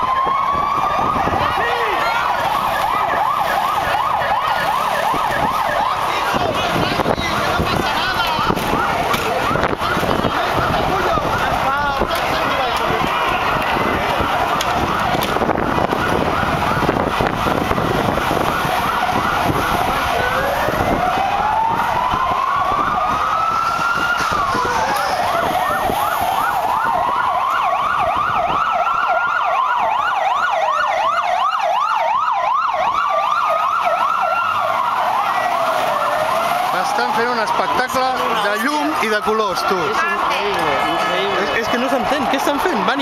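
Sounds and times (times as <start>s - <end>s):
siren fast warbling yelp: 0.0s - 43.0s
siren slow wail: 0.0s - 43.0s
street noise: 0.0s - 43.0s
vehicle engine: 4.6s - 26.7s.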